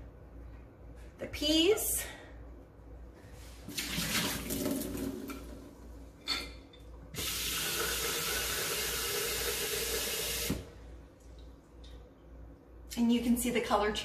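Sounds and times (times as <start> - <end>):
water splashing into steel sink: 3.7 - 5.6
tap water running: 3.7 - 5.7, 7.1 - 10.8.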